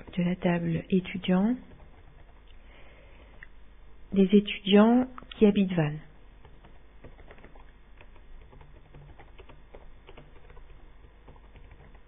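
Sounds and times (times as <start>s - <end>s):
faint keyboard typing: 0.0s - 3.5s, 6.4s - 12.0s.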